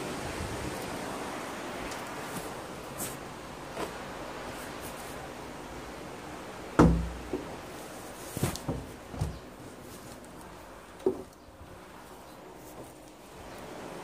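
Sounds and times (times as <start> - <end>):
wooden door thumping and knocking: 6.8 - 7.5.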